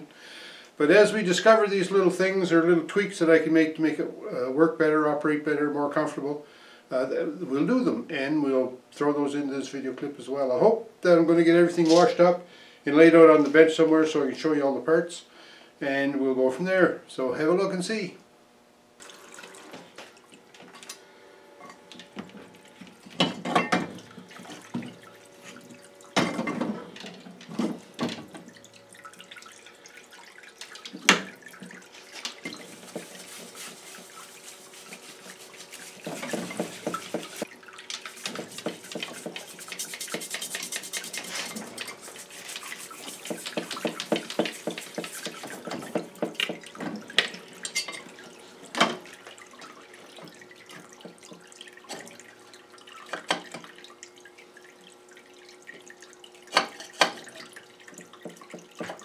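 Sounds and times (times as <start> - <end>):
liquid splashing and dripping: 21.9 - 59.0
rhythmic brush strokes: 31.9 - 46.4.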